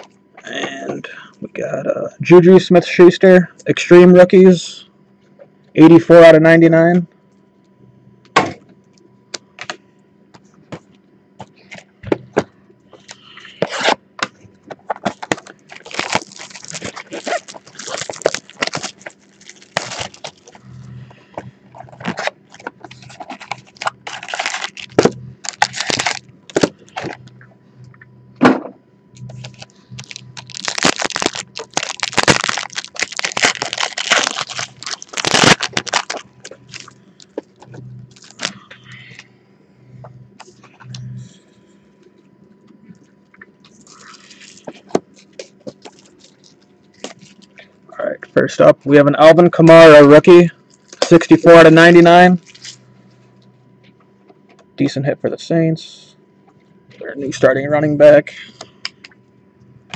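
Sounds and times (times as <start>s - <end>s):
cards and packs crinkling: 14.8s - 20.6s, 21.4s - 27.4s, 29.2s - 39.2s, 43.6s - 47.6s, 49.8s - 52.8s
foil pack tearing: 15.0s - 20.6s, 21.9s - 27.2s, 29.3s - 37.4s, 38.1s - 38.6s, 43.7s - 47.5s, 52.4s - 52.8s.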